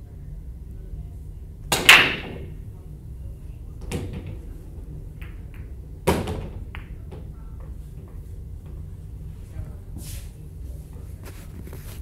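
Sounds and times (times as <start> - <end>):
cue striking ball: 1.7 - 2.6, 5.1 - 8.2
pool balls clacking: 1.7 - 2.6, 3.8 - 8.8.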